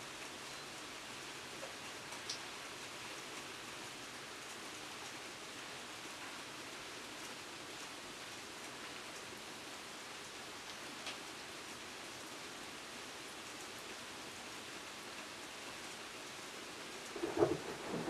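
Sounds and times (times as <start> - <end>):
steady rain: 0.0 - 18.0
raindrop ticks: 1.6 - 2.4.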